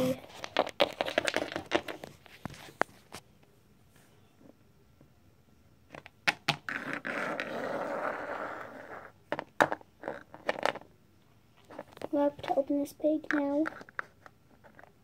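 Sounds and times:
toys scraping on tabletop: 0:06.7 - 0:09.1.

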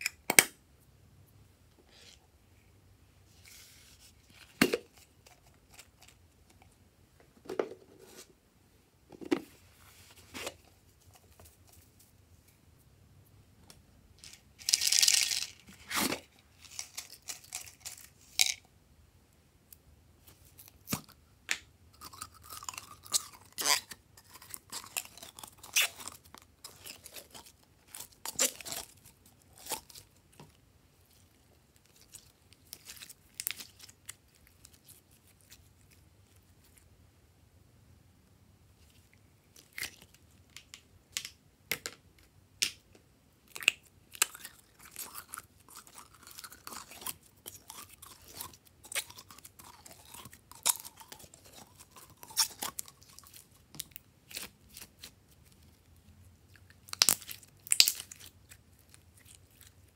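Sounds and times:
slime squishing: 0:43.5 - 0:59.9.

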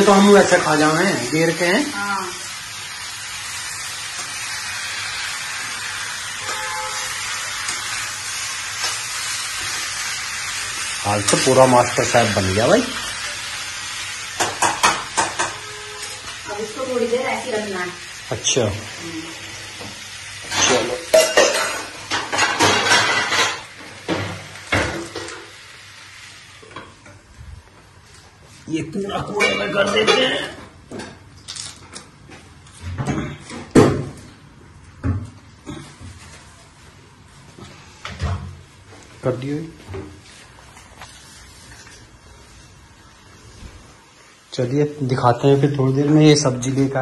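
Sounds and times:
potato slices sizzling in oil: 0:00.0 - 0:27.3, 0:40.2 - 0:47.0
pans and utensils clattering: 0:14.4 - 0:16.4, 0:19.8 - 0:25.6, 0:29.2 - 0:31.3.

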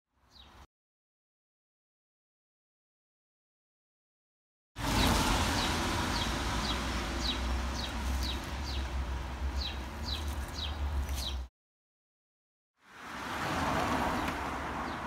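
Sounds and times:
small bird chirping: 0:09.6 - 0:11.5.

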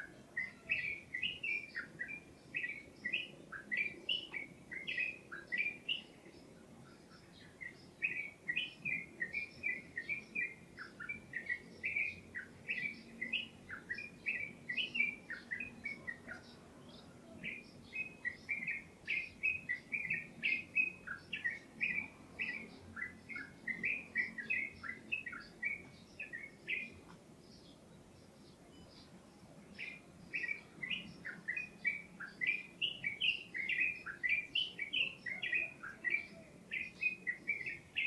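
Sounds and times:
songbird chirping: 0:00.0 - 0:38.0.

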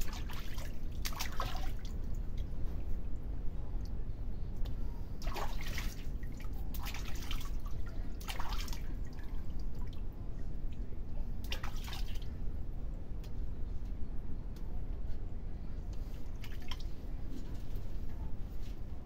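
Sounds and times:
water splashing in a steel basin: 0:00.0 - 0:01.9, 0:05.2 - 0:09.0, 0:11.4 - 0:12.2
steady low rumble: 0:00.0 - 0:19.0.

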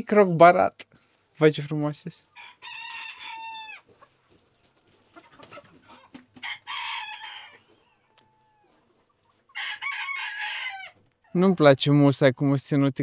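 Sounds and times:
chickens clucking: 0:02.2 - 0:11.6
rooster crowing: 0:02.4 - 0:03.9, 0:06.4 - 0:08.7, 0:09.5 - 0:11.0.

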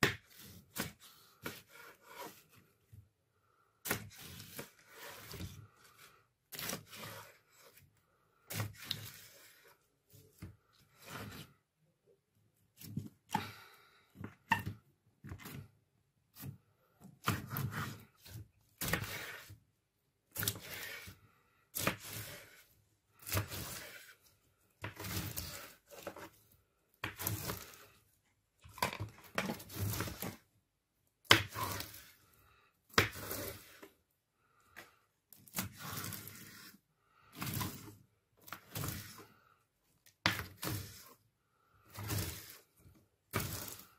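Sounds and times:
knife slicing through slime: 0:03.8 - 0:07.8, 0:08.5 - 0:09.7, 0:17.2 - 0:19.6, 0:20.3 - 0:22.6, 0:23.2 - 0:24.2, 0:24.8 - 0:26.4, 0:27.0 - 0:28.0, 0:29.3 - 0:30.4, 0:31.2 - 0:32.2, 0:32.9 - 0:33.9, 0:35.4 - 0:39.4, 0:40.2 - 0:41.2, 0:41.9 - 0:42.7, 0:43.3 - 0:43.9.

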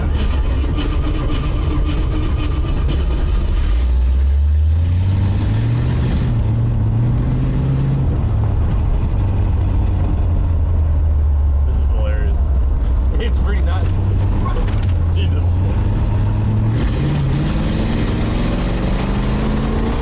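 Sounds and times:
car engine revving: 0:00.0 - 0:20.0.

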